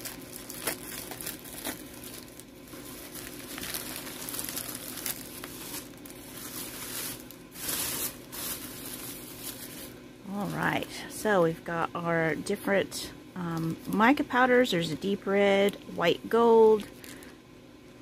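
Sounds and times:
tissue paper crinkling: 0:00.0 - 0:11.1, 0:16.8 - 0:17.3.

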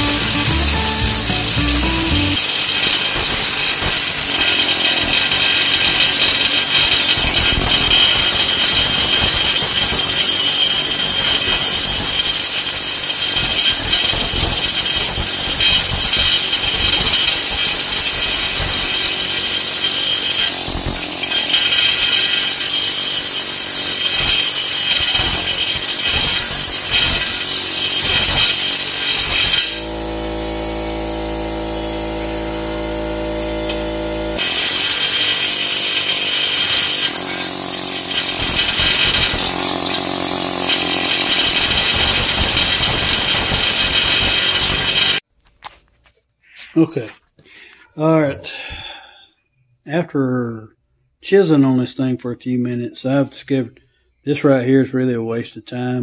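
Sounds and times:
air hammer rattling on metal: 0:00.0 - 0:29.8, 0:34.4 - 0:45.2.

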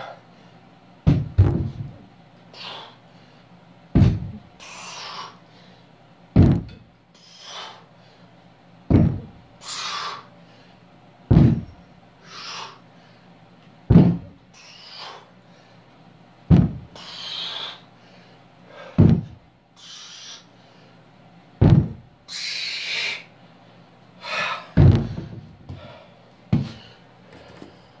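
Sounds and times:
hard breathing: 0:02.5 - 0:03.6, 0:07.2 - 0:08.4, 0:12.2 - 0:13.4, 0:14.5 - 0:16.0, 0:16.8 - 0:21.1, 0:22.4 - 0:28.0
loaded barbell knocking on floor: 0:13.9 - 0:14.3.

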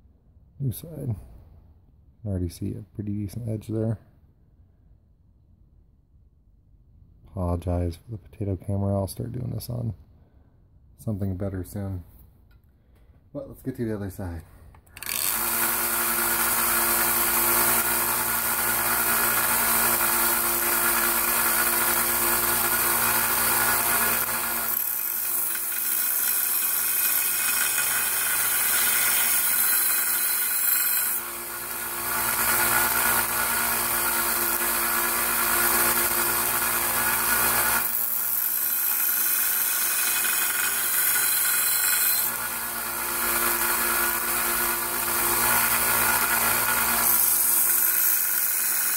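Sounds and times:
belt sander grinding a blade: 0:15.0 - 0:48.9.

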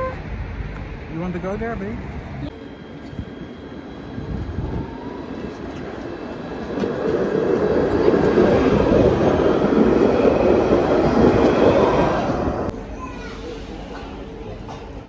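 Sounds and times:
tram passing: 0:00.0 - 0:15.0.

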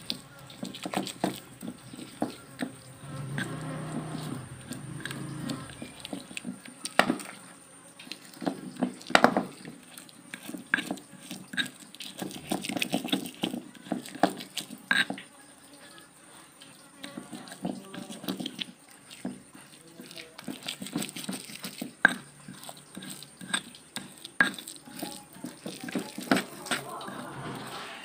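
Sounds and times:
stone pestle pounding in mortar: 0:08.4 - 0:09.6, 0:20.4 - 0:28.0.

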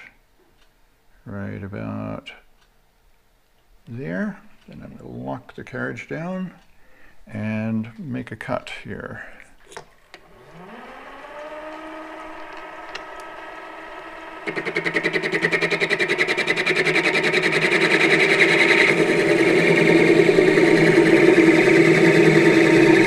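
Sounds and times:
lathe running: 0:10.2 - 0:23.0
turning tool cutting steel: 0:10.2 - 0:23.0.

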